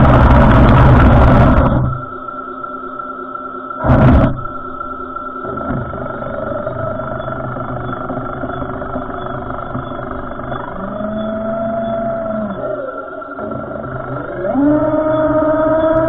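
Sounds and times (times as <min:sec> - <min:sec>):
humming tone: 0:00.0 - 0:16.0
model tank motors and tracks: 0:03.8 - 0:16.0.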